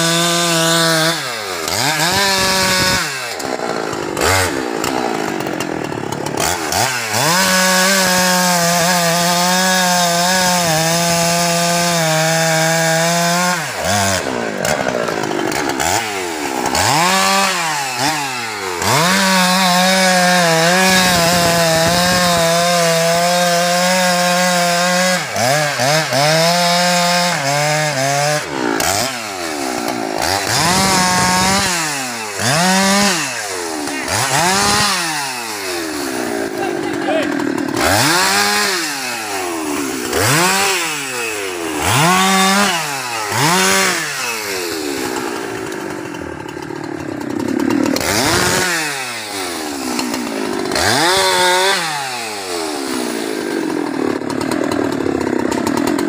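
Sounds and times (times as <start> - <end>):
chainsaw cutting log: 0.0 - 56.0.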